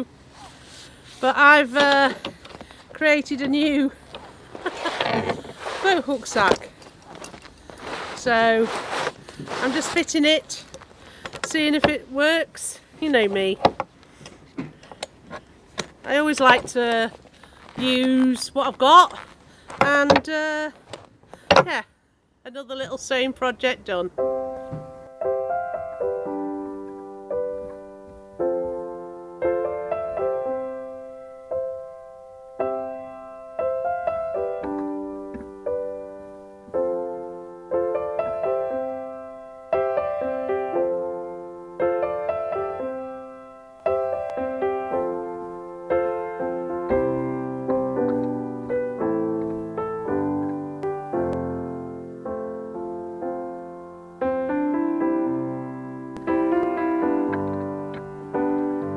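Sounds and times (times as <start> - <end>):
solo piano chords: 24.1 - 58.9.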